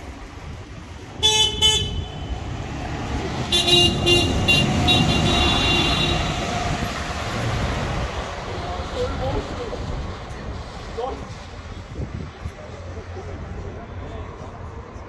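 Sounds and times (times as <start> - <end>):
bus horn tooting: 1.2 - 2.5, 3.4 - 6.5
bus engine pulling away: 2.3 - 15.0.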